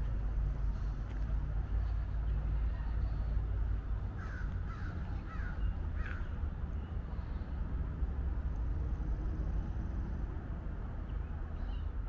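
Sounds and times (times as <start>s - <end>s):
low outdoor rumble: 0.0s - 12.0s
crow cawing: 4.2s - 6.2s.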